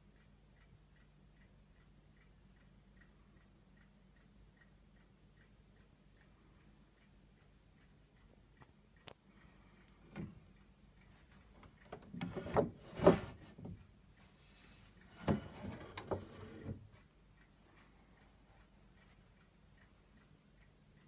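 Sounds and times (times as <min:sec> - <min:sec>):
wooden knocks and rubbing: 0:11.6 - 0:13.8, 0:14.6 - 0:16.8.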